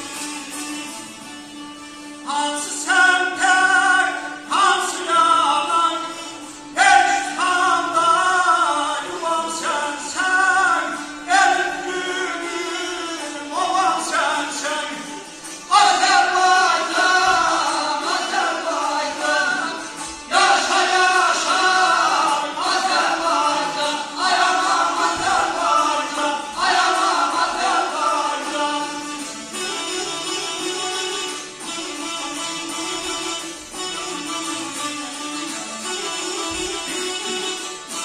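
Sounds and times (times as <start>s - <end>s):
long-necked lutes: 0.0s - 38.0s
men singing: 2.3s - 29.3s.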